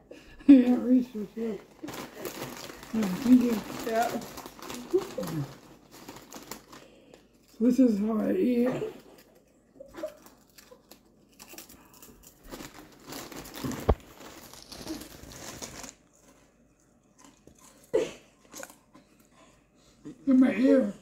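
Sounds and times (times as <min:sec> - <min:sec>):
plastic bag crinkling: 0:00.7 - 0:17.8
potato chips crunching: 0:01.7 - 0:07.7, 0:08.9 - 0:16.4.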